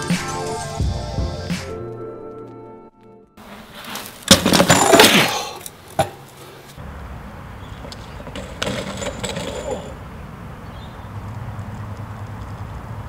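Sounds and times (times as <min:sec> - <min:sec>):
bike hitting the ground: 0:03.4 - 0:06.4, 0:07.6 - 0:10.0
bike tyres scrubbing on concrete: 0:03.4 - 0:06.8
metal pegs and frame clattering: 0:04.3 - 0:06.4, 0:07.8 - 0:10.0.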